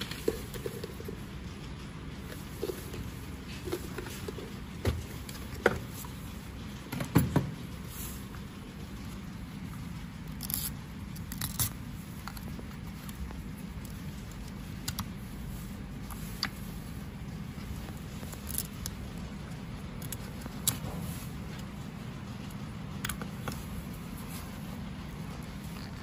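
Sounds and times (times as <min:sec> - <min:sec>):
steady low hum: 0:00.0 - 0:26.0
plastic parts clicking and scraping: 0:10.2 - 0:15.2, 0:17.8 - 0:23.8.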